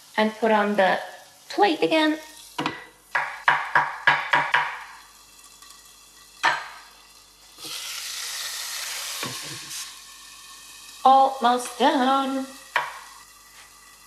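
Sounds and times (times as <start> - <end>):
egg sizzling in a pan: 0.0 - 14.0
knock: 2.6 - 4.9.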